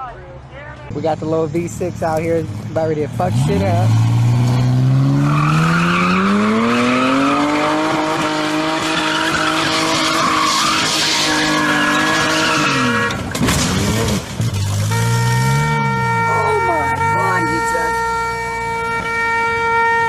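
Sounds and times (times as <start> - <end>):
car engine revving: 1.0 - 19.0
sharp crack: 13.1 - 14.9.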